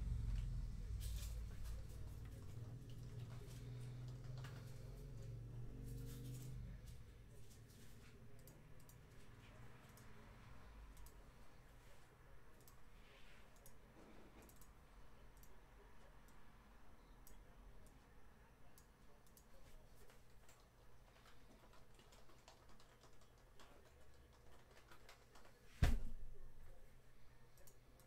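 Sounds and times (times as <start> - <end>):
computer mouse clicks: 1.7 - 4.8, 7.7 - 10.1, 10.9 - 11.2, 12.5 - 12.8, 13.5 - 14.8, 18.7 - 25.6, 27.6 - 28.0.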